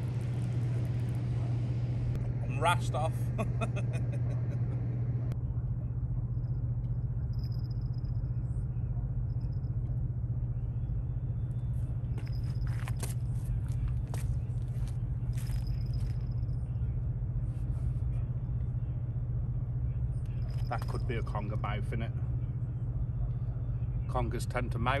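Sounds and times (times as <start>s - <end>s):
bite bell jingling: 12.1s - 13.2s, 15.3s - 16.6s.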